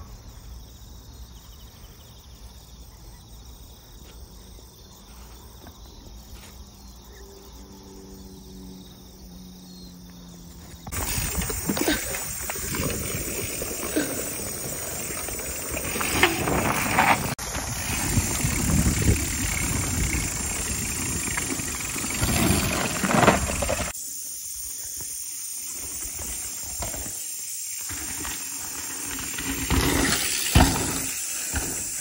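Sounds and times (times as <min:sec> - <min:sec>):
bike tyres rumbling on dirt: 0:10.7 - 0:24.0, 0:25.0 - 0:32.0.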